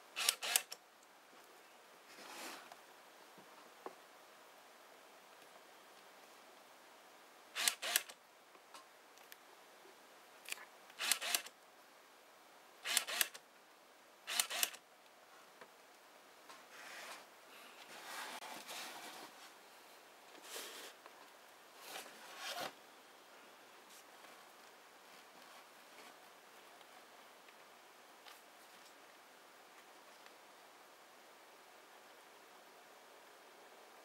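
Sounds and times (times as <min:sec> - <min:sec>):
autofocus motor whirring: 0:00.2 - 0:00.8, 0:07.6 - 0:08.1, 0:11.0 - 0:11.5, 0:12.9 - 0:13.4, 0:14.3 - 0:14.8.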